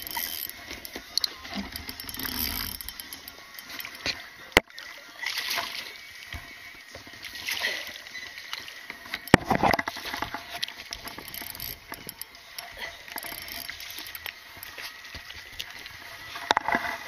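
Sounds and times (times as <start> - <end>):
fishing reel cranking: 0.0 - 4.5, 8.0 - 17.0
water splashing: 0.0 - 17.0.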